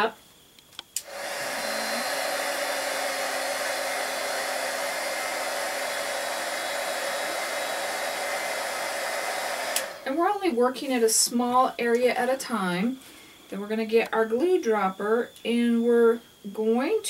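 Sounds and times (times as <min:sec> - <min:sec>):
faint motor hum: 0:00.0 - 0:17.0
heat gun blowing air: 0:01.0 - 0:10.2.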